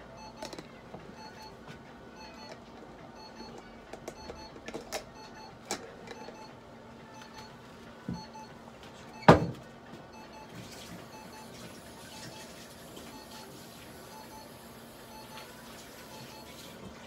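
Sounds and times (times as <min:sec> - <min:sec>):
device beeping short tones: 0:00.2 - 0:00.5, 0:03.2 - 0:05.6, 0:06.2 - 0:06.5, 0:07.1 - 0:07.5, 0:11.1 - 0:13.5, 0:16.1 - 0:16.6.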